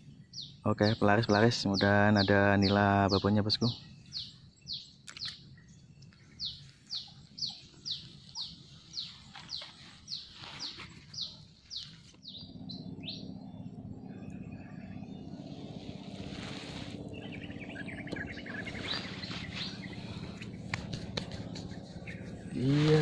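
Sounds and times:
low steady drone: 0:11.1 - 0:23.0.

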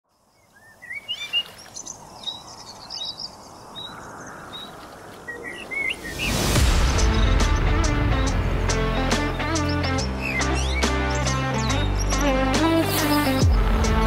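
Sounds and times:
small songbirds chirping: 0:00.1 - 0:14.0
rising rush of noise: 0:05.0 - 0:08.6
music: 0:06.5 - 0:14.0.

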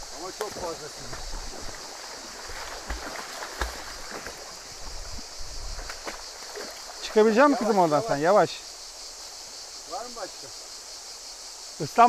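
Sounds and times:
creek water over rocks: 0:00.0 - 0:12.0
puppy splashing through water: 0:00.3 - 0:05.0.

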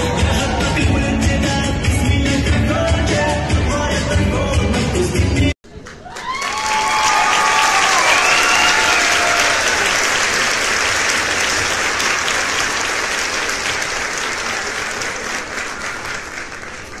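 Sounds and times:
crowd applauding: 0:05.7 - 0:17.0.

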